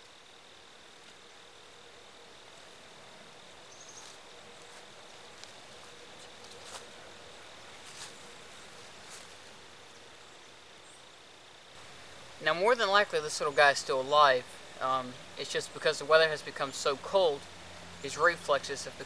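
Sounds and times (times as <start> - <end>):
high-pitched insect trill: 0.0 - 19.0
soft hiss: 0.0 - 19.0.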